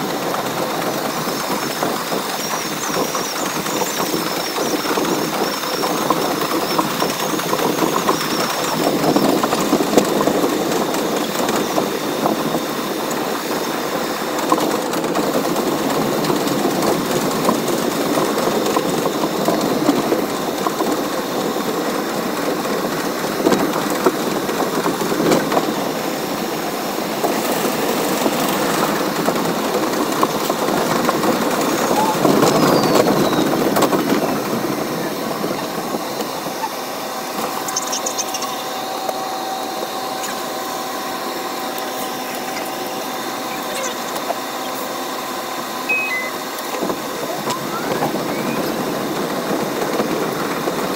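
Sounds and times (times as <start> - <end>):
subway train rumble: 0.0 - 37.8, 38.4 - 50.9
wheels clattering over rail joints: 0.0 - 45.0
high wavering squeal: 45.9 - 46.5, 47.3 - 48.8.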